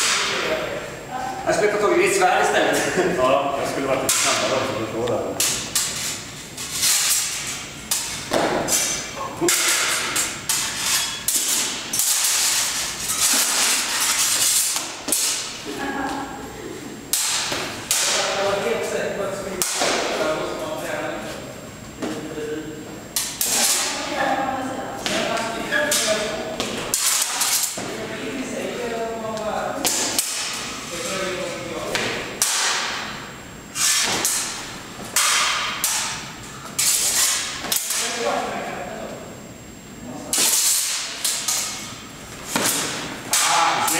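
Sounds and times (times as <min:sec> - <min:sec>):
steel sabres clashing: 0:04.0 - 0:04.8, 0:05.4 - 0:15.6, 0:17.1 - 0:18.5, 0:19.6 - 0:20.3, 0:23.2 - 0:24.1, 0:25.0 - 0:27.9, 0:29.8 - 0:31.2, 0:31.9 - 0:38.3, 0:40.3 - 0:43.9.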